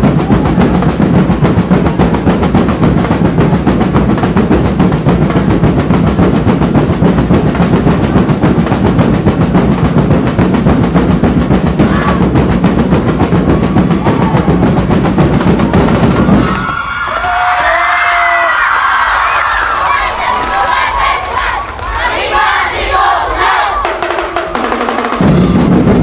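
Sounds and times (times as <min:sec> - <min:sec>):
drum and percussion band playing: 0:00.0 - 0:26.0
crowd cheering and shouting: 0:11.8 - 0:12.4, 0:13.2 - 0:24.2.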